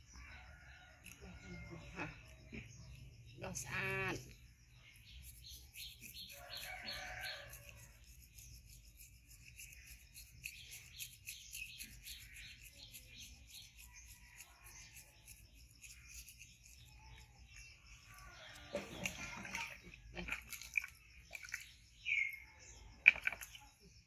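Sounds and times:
toothbrush scrubbing teeth: 0:05.0 - 0:19.8.

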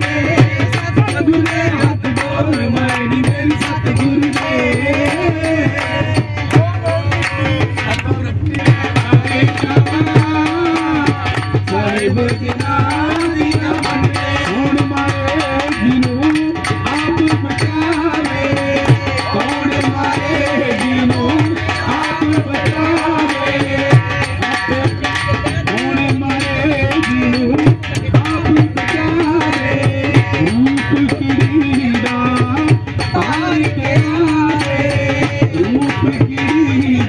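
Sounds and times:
hand drum beat: 0:00.0 - 0:37.0
man singing into microphone: 0:00.0 - 0:37.0.

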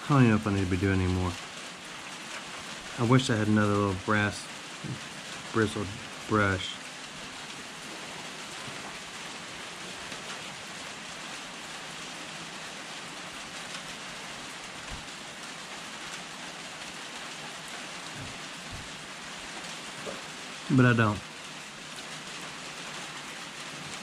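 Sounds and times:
steady hiss: 0:00.0 - 0:24.0
faint low thumps: 0:18.2 - 0:19.0.

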